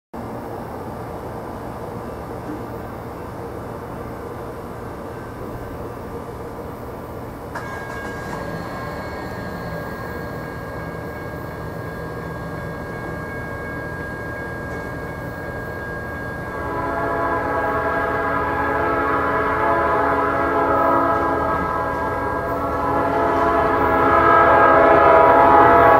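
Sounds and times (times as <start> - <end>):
diesel train rumbling: 0.2 - 25.9
crossing bell ringing: 4.9 - 25.9
locomotive air horn chord: 7.6 - 25.9.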